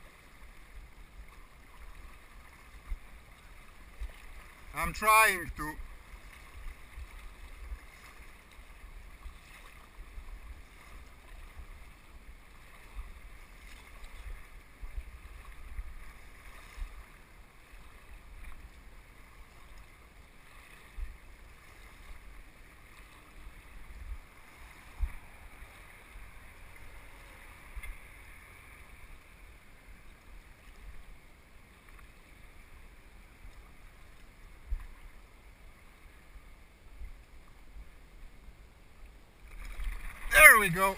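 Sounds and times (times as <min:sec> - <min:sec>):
wind rumble on microphone: 0:05.8 - 0:17.2, 0:23.4 - 0:28.4
river rushing over stones: 0:39.5 - 0:40.9.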